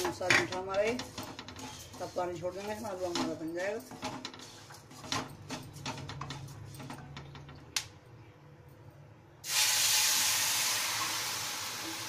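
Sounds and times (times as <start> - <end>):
spatula scraping a pan: 0.0 - 7.1
water hitting hot pan sizzling: 9.4 - 12.0.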